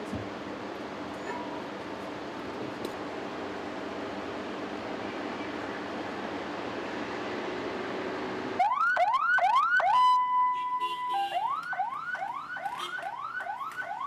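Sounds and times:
electronic siren whooping: 0:08.6 - 0:10.8.

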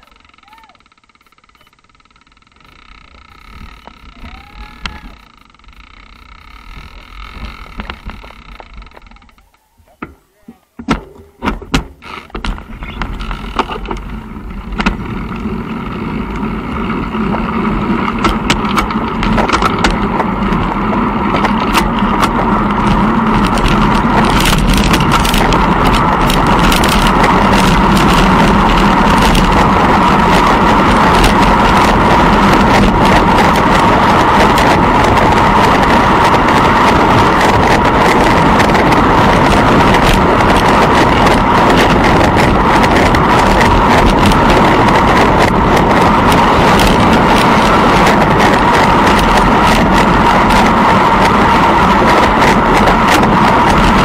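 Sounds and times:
rushing noise with low hum: 0:02.0 - 0:09.4, 0:11.4 - 0:54.0
sharp clicks and knocks: 0:04.8 - 0:15.5, 0:17.3 - 0:29.7.

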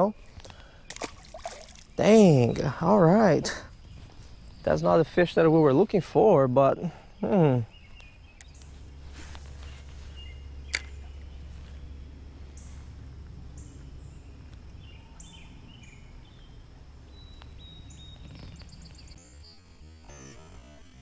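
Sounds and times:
low wind rumble: 0:00.0 - 0:19.2
bird chirps: 0:06.9 - 0:12.9, 0:13.5 - 0:20.1
sharp click: 0:10.7 - 0:11.0.

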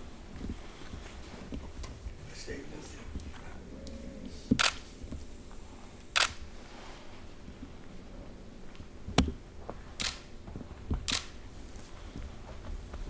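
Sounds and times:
low room hum: 0:00.0 - 0:13.0
camera shutter clicking: 0:04.6 - 0:04.8, 0:06.2 - 0:06.4, 0:10.0 - 0:10.3, 0:11.1 - 0:11.3.

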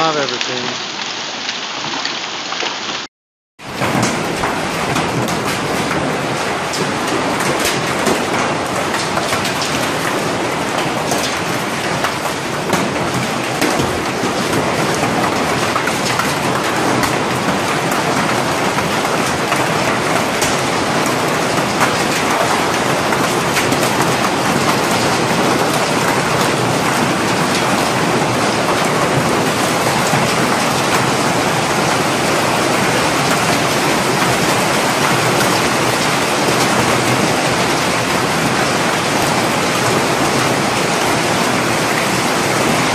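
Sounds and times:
hail and rain on pavement: 0:00.0 - 0:42.9.

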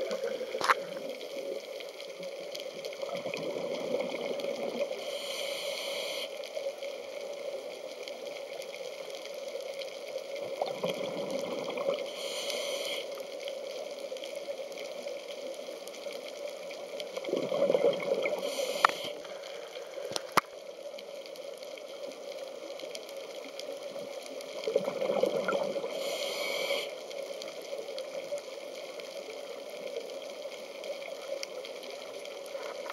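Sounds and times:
gurgle of exhaled bubbles: 0:00.0 - 0:01.2, 0:02.9 - 0:05.0, 0:10.4 - 0:12.2, 0:17.1 - 0:18.6, 0:24.5 - 0:26.0
regulator breath hiss: 0:05.0 - 0:06.5, 0:12.1 - 0:13.2, 0:18.4 - 0:20.4, 0:25.9 - 0:27.0.

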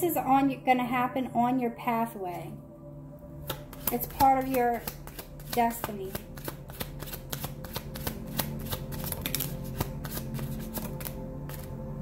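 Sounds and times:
cards being shuffled: 0:03.4 - 0:11.8.

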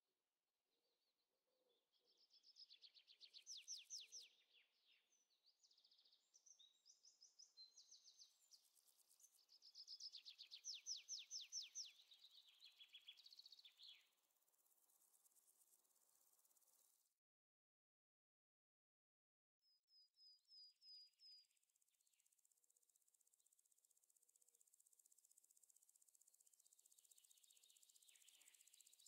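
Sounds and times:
songbird trilling and chirping: 0:02.0 - 0:04.4, 0:06.3 - 0:14.1, 0:27.1 - 0:29.0.

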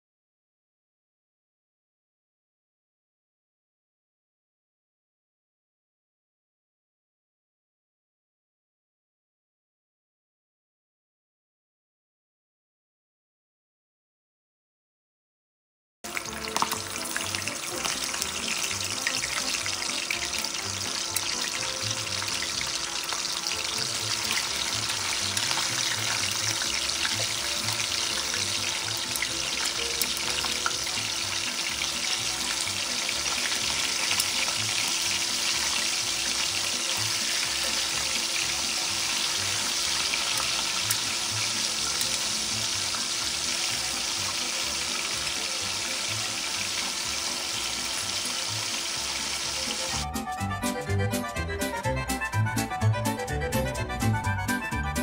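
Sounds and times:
fish sizzling in hot oil: 0:16.1 - 0:50.0.

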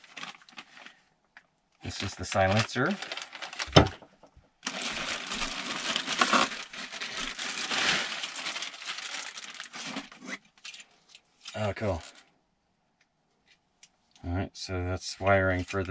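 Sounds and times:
plastic bags crinkling: 0:00.0 - 0:01.0, 0:01.9 - 0:10.9.

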